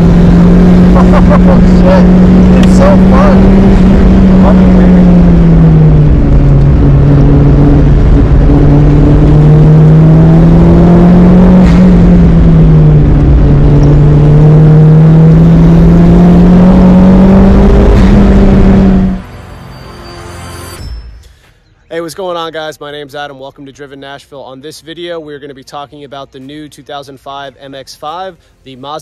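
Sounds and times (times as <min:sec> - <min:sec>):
car engine at high revs: 0:00.0 - 0:19.3.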